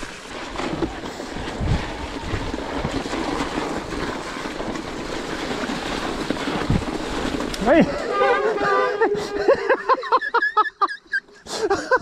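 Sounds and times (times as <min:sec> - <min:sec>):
wind on microphone: 0:00.0 - 0:08.0
bike tyres splashing through mud: 0:00.0 - 0:09.8.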